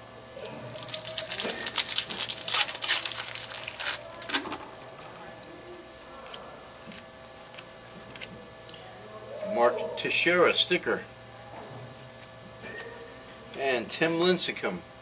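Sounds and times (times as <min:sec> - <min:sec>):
card pack crinkling and rustling: 0:00.7 - 0:04.5.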